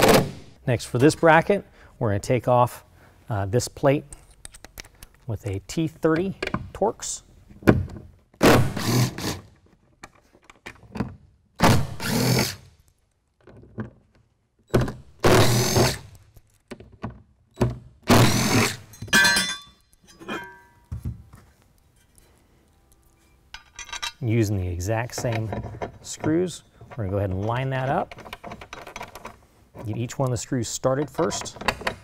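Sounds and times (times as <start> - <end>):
cordless drill running: 12.0 - 12.6, 15.3 - 16.0
metallic clinks of screws: 18.8 - 20.9, 23.5 - 24.3.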